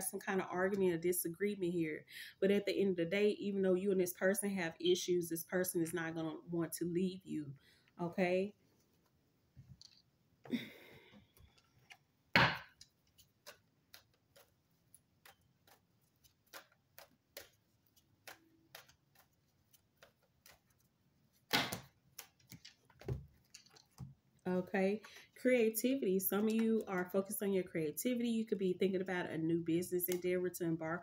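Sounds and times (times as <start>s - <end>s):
cards being shuffled: 12.7s - 24.1s.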